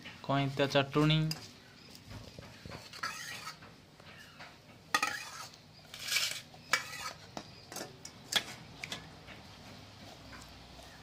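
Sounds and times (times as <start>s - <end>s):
rustling scrape: 1.4s - 3.7s, 4.9s - 7.3s.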